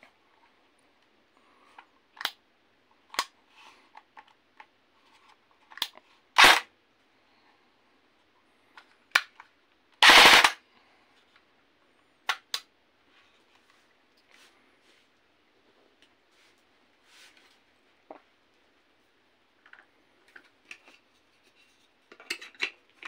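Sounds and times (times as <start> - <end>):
airsoft gun firing bursts: 6.4 - 6.6, 10.0 - 10.6.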